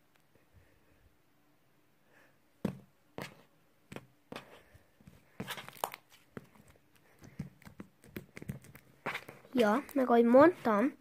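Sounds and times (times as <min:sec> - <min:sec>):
slime squelching: 0:04.4 - 0:11.0.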